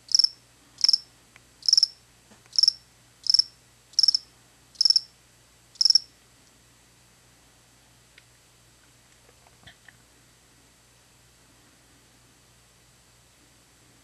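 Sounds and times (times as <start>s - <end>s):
cricket chirping: 0.0s - 5.1s, 5.8s - 6.1s.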